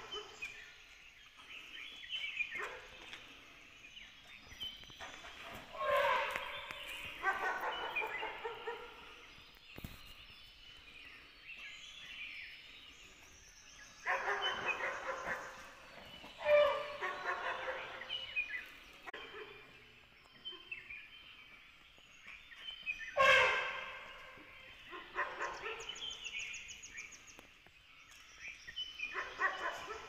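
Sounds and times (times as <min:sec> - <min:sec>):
dogs barking: 0:00.0 - 0:00.5, 0:02.5 - 0:03.1, 0:05.1 - 0:09.2, 0:14.0 - 0:15.8, 0:16.4 - 0:18.4, 0:19.1 - 0:19.8, 0:24.9 - 0:26.1, 0:29.1 - 0:30.0.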